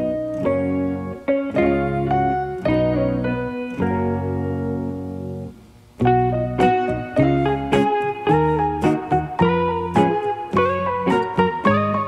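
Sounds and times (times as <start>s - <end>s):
plucked guitar melody: 0.0s - 12.0s.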